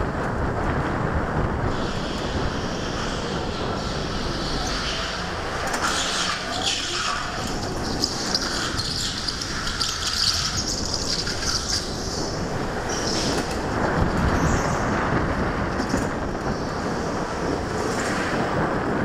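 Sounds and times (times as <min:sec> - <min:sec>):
go-kart engine rumble: 0:00.0 - 0:19.0
wind noise on microphone: 0:00.0 - 0:19.0
tyres hissing and squealing: 0:01.7 - 0:13.5.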